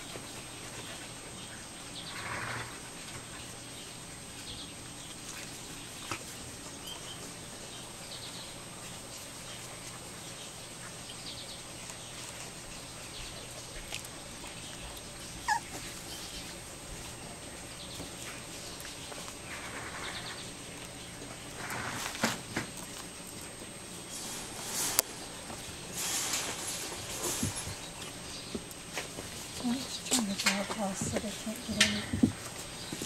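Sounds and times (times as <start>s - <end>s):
puppies whimpering and squeaking: 14.8s - 16.6s
puppy yip: 15.4s - 15.8s.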